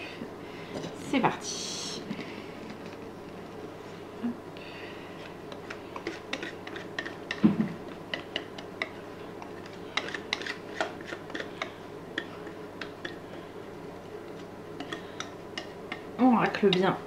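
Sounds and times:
utensil scraping mixing bowl: 5.2 - 17.0.

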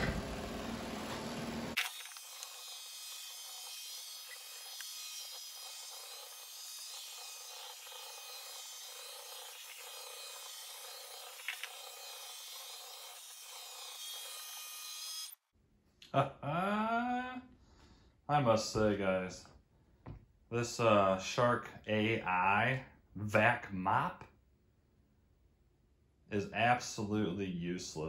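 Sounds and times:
robot vacuum whirring: 0.0 - 15.4.

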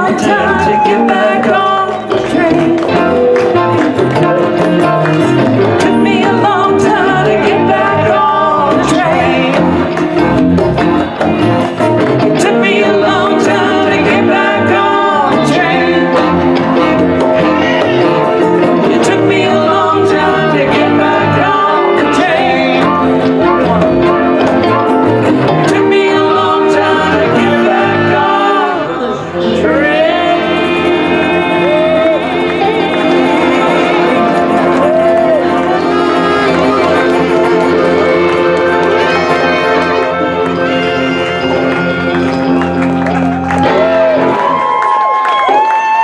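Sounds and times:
congas: 0.0 - 28.9, 29.6 - 46.0
electric bass: 0.0 - 45.0
electric and acoustic guitars: 0.0 - 46.0
tenor saxophone: 13.3 - 44.6.

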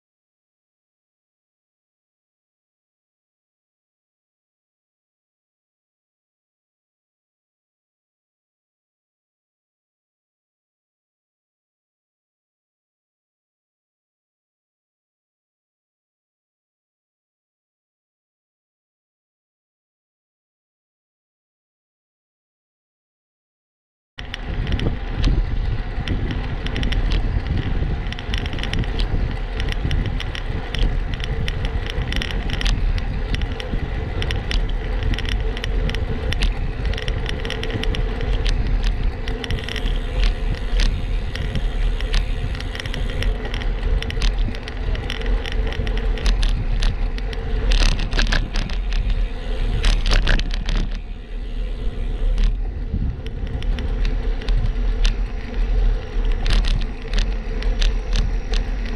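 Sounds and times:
bike rattling on rough pavement: 24.2 - 58.9
bike tyre noise on asphalt: 24.2 - 58.9
wind rushing over microphone: 24.2 - 58.9.

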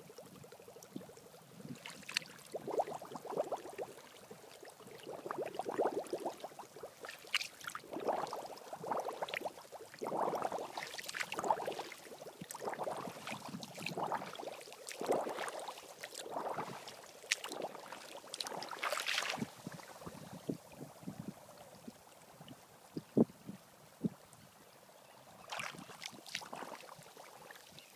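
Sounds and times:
foot sloshing in shallow water: 1.8 - 2.8, 7.0 - 8.3, 10.3 - 20.3, 25.4 - 27.9.

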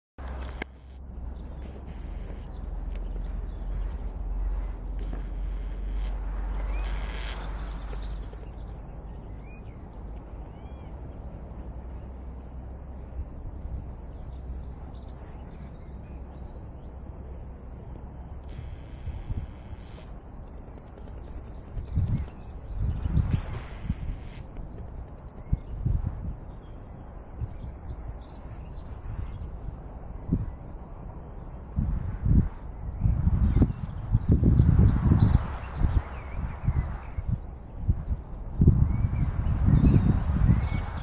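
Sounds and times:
steady low rumble: 0.2 - 27.4
small birds chirping: 0.2 - 29.8, 31.4 - 41.0
rush of noise: 3.5 - 8.7, 18.4 - 20.2, 23.0 - 24.5.

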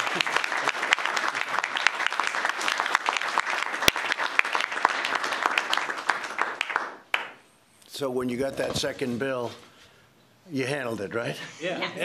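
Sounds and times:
audience applause: 0.0 - 7.4.

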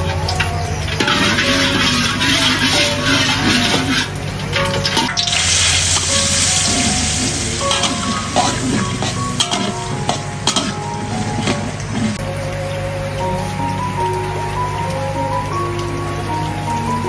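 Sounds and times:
wok sizzling: 0.0 - 12.2
metal spatula scraping pan: 1.0 - 4.1, 5.4 - 12.2
spatula clinking against pan: 5.0 - 12.1.

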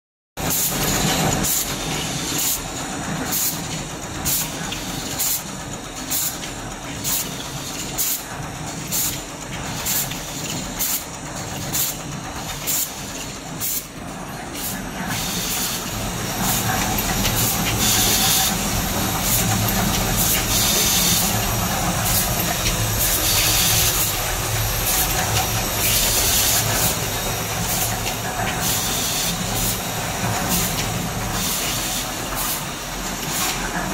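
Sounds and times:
machine mechanical hum: 0.4 - 33.9
pneumatic air hiss: 12.7 - 13.9, 14.6 - 16.7, 17.4 - 21.4, 23.0 - 24.1, 28.6 - 29.9, 31.4 - 33.6.

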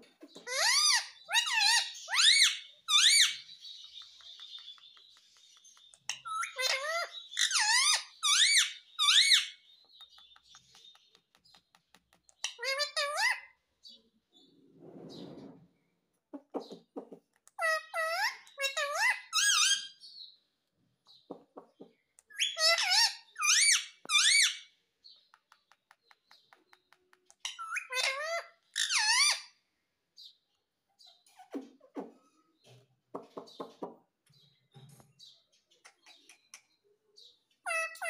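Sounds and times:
parakeet shrill chirping: 0.5 - 3.6, 6.2 - 9.6, 12.4 - 13.5, 17.6 - 20.0, 22.3 - 24.7, 27.4 - 29.6, 37.7 - 38.0.

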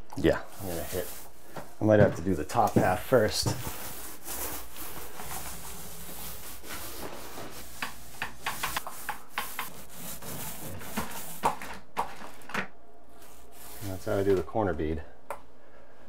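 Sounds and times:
paint roller rubbing hiss: 0.6 - 1.4, 3.1 - 11.6, 13.2 - 14.3.

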